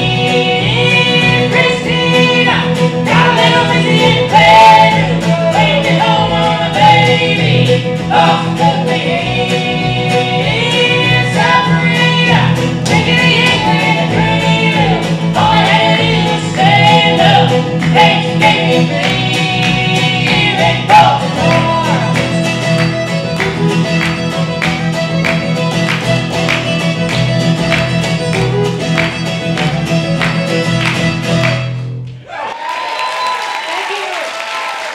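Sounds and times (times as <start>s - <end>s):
vocal harmonies: 0.0s - 22.8s
strummed acoustic guitar: 0.0s - 32.1s
acoustic string trio playing: 0.0s - 32.2s
audience applause: 32.2s - 34.9s.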